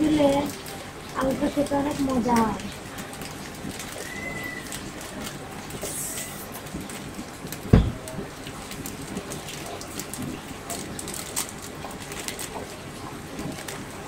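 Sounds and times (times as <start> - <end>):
food sizzling in oil: 0.0 - 14.0
dull thump: 7.7 - 8.0.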